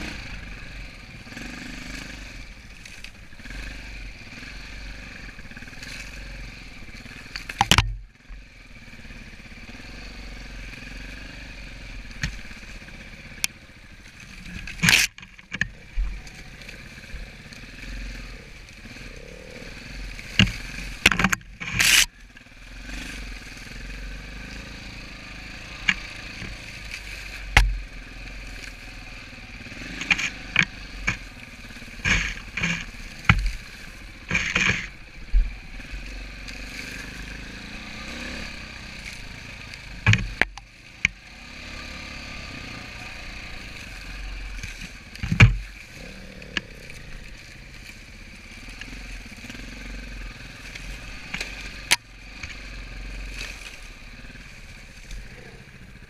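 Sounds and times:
dirt bike engine: 0:00.0 - 0:56.0
brush knocking and scraping bike: 0:14.2 - 0:18.3, 0:19.8 - 0:22.2, 0:25.3 - 0:28.8, 0:29.4 - 0:55.6.

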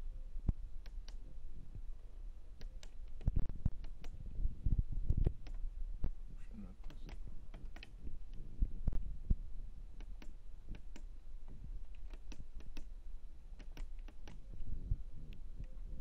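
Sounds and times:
washing machine buttons clicking: 0:00.8 - 0:01.2, 0:02.6 - 0:04.2, 0:05.2 - 0:05.6, 0:06.8 - 0:08.4, 0:10.0 - 0:12.9, 0:13.6 - 0:14.5.

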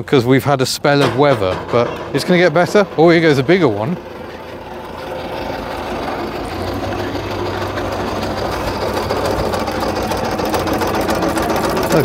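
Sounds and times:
steam traction engine clattering: 0:00.8 - 0:12.0
low hum: 0:01.0 - 0:12.0.

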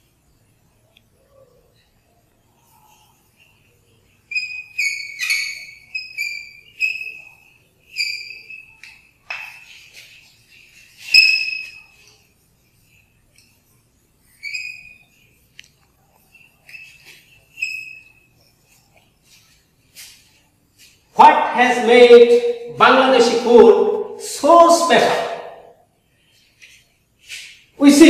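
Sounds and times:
chalk squeaking on blackboard: 0:02.6 - 0:13.0, 0:13.6 - 0:24.1.

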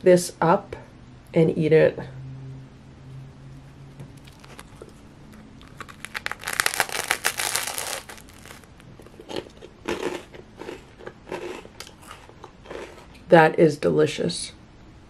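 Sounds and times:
crunch of biting toast: 0:04.2 - 0:13.1
chewing crunches: 0:04.2 - 0:13.2.

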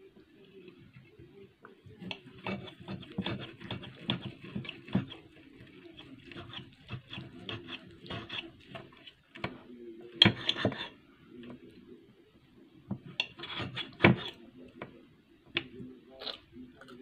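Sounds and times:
fork tapping plate: 0:02.0 - 0:05.2, 0:06.0 - 0:08.8, 0:12.9 - 0:14.9
knife scraping on plate: 0:02.0 - 0:09.1, 0:10.2 - 0:11.0, 0:13.0 - 0:14.4.

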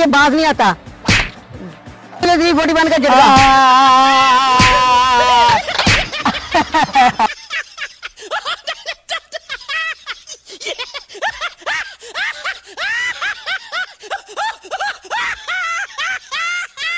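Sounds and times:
cartoon snickering laugh: 0:05.2 - 0:16.9.

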